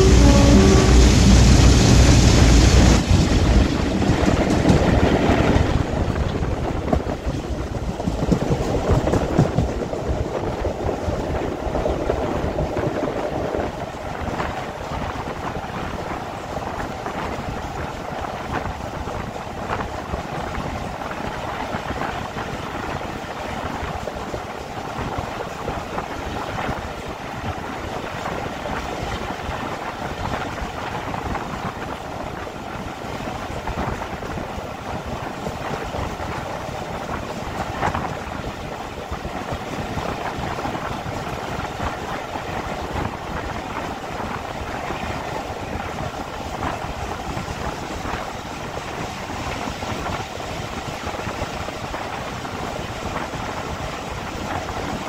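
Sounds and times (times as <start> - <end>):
diesel train running: 0.0 - 19.6
wind on microphone: 0.0 - 55.0.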